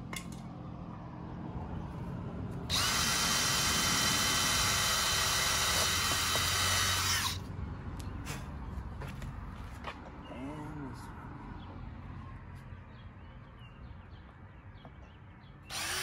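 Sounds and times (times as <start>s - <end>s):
cordless drill whining: 2.7s - 7.4s, 15.7s - 16.0s.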